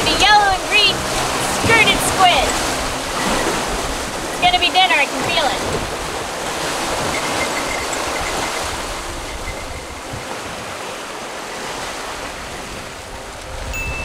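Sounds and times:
water rushing past boat hulls: 0.0 - 14.0.

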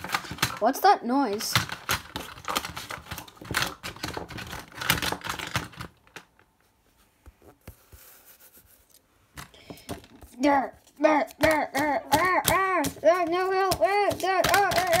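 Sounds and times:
clattering taps and scratches: 1.3 - 6.5, 9.4 - 15.0.

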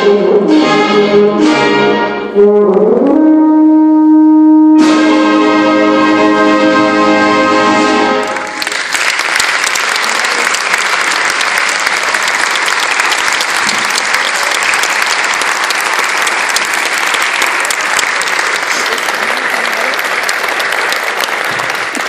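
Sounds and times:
brass band chord: 0.0 - 8.6
audience applauding: 8.2 - 22.0.

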